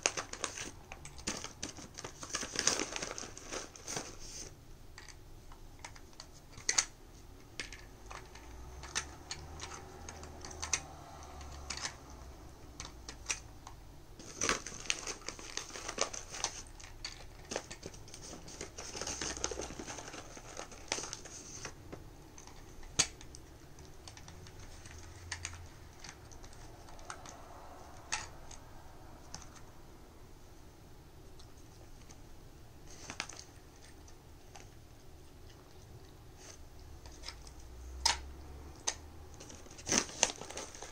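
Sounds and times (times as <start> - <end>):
plastic puzzle feeder clacking: 4.9 - 28.6.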